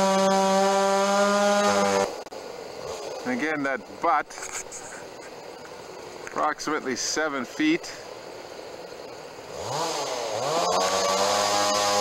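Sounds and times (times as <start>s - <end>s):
chainsaw revving: 0.0s - 3.5s, 9.4s - 12.0s.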